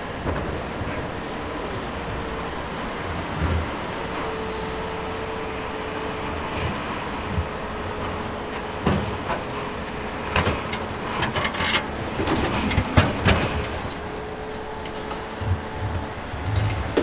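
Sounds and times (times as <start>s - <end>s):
excavator diesel engine running: 0.0s - 17.0s
excavator bucket knocks and clanks: 8.8s - 9.5s, 10.4s - 14.0s.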